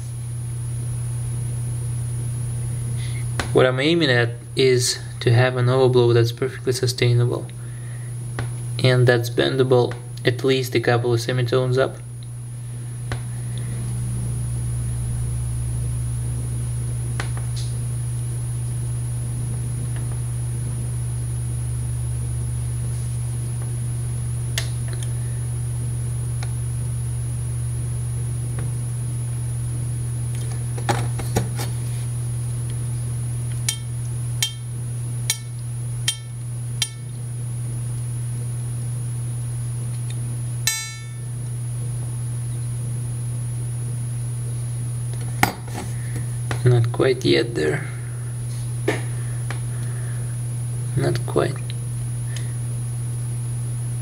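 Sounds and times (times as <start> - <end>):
steady low hum: 0.0 - 54.0
short ringing notes: 40.7 - 41.3.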